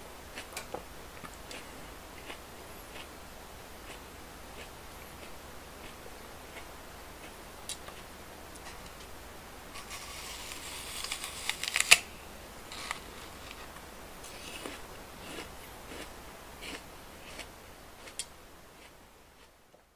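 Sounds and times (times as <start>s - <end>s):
crunching bite into apple: 9.8s - 12.0s, 12.7s - 19.5s.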